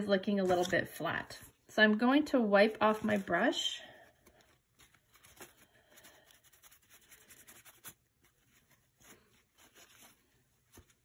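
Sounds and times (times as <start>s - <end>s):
brush rubbing in towel: 4.8s - 11.0s.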